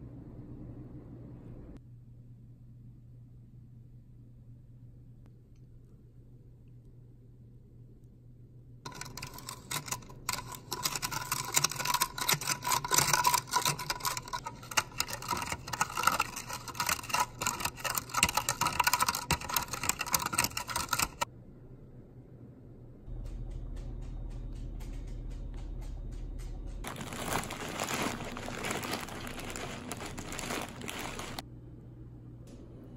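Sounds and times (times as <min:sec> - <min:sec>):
low steady hum: 0:00.0 - 0:32.9
spoon clinking in a cup: 0:08.9 - 0:21.2.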